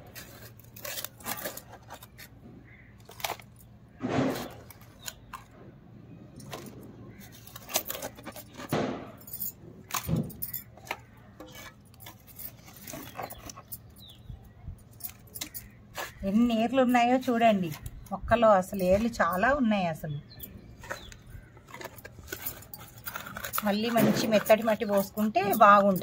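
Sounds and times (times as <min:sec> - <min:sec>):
metallic clinks: 0:07.5 - 0:15.8, 0:20.3 - 0:26.0
tool scraping soil in pot: 0:20.8 - 0:26.0.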